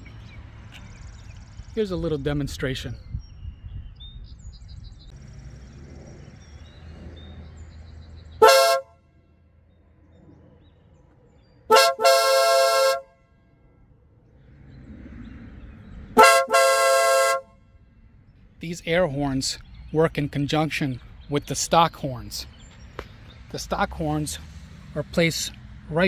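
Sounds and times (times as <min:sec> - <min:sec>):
car air horn blasts: 0:08.4 - 0:09.0, 0:11.7 - 0:13.2, 0:16.2 - 0:17.6.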